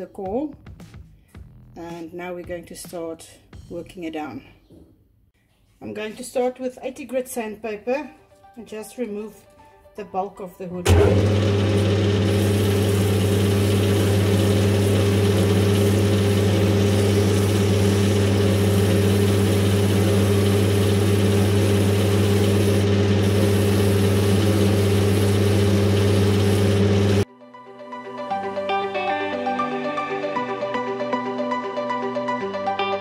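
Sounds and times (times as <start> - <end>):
metal lathe humming: 10.9 - 27.2
sandpaper sanding spinning wood: 11.7 - 27.2.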